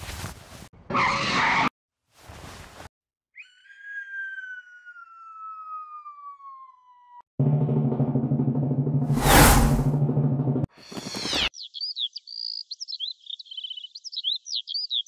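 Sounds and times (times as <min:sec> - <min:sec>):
descending cartoon whistle: 0:03.4 - 0:07.0
cartoon whooshes: 0:09.1 - 0:10.0.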